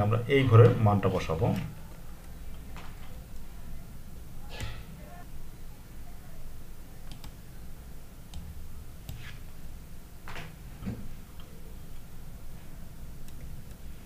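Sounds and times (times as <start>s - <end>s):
low steady hum: 0.0s - 14.0s
computer mouse clicking: 7.0s - 7.4s, 13.2s - 13.8s.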